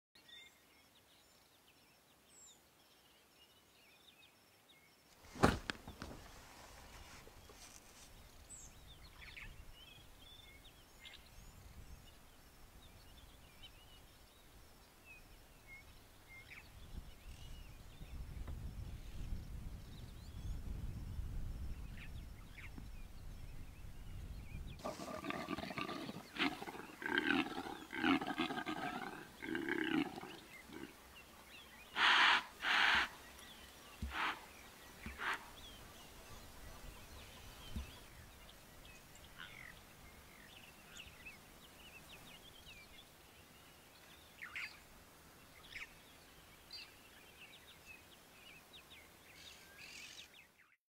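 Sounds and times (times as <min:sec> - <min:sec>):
impala roaring: 0:24.8 - 0:31.0.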